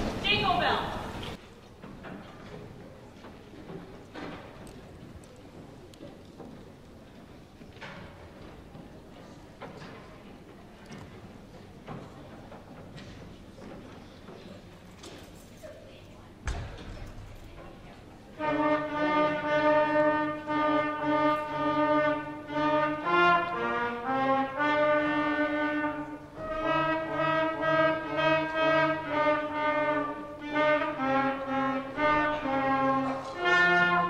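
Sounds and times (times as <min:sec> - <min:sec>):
wind ensemble playing: 0:18.3 - 0:34.0.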